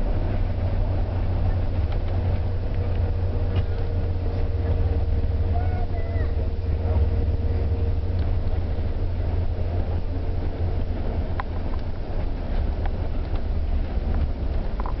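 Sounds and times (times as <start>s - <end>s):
bus engine rumble: 0.0s - 15.0s
faint clicks and rattles: 10.7s - 15.0s.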